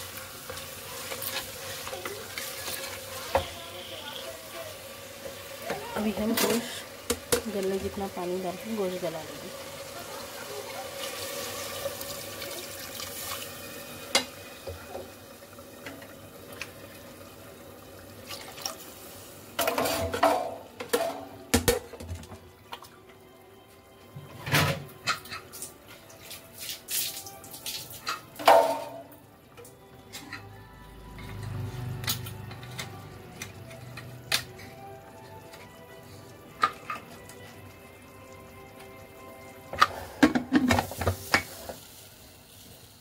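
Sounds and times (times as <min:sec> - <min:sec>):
water pouring into pot: 0:00.0 - 0:23.0, 0:25.3 - 0:29.2, 0:32.7 - 0:43.0
utensils knocking against pot: 0:05.7 - 0:08.0, 0:39.7 - 0:41.6.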